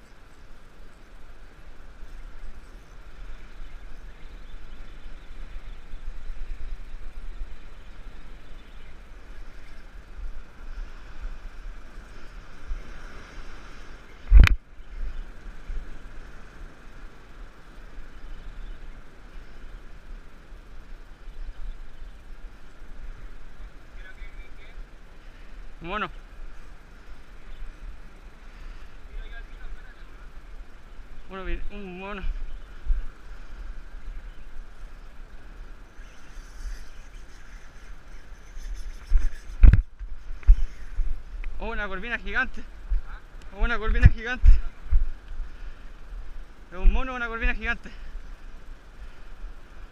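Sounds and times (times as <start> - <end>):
wind rumbling on microphone: 0.0 - 49.9
wind buffeting microphone: 32.2 - 45.6.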